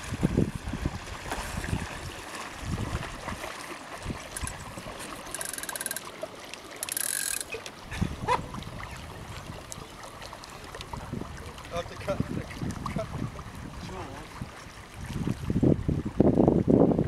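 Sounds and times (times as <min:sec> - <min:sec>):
water washing along boat hull: 0:00.0 - 0:17.0
rapid mechanical clicking: 0:05.3 - 0:06.0, 0:06.8 - 0:07.5.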